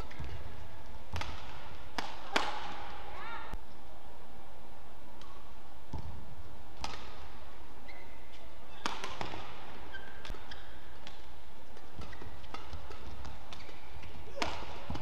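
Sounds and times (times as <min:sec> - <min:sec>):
court shoes squeaking: 0:00.0 - 0:02.7, 0:06.8 - 0:15.0
rackets striking shuttlecock: 0:01.1 - 0:03.0, 0:06.8 - 0:07.4, 0:08.3 - 0:15.0.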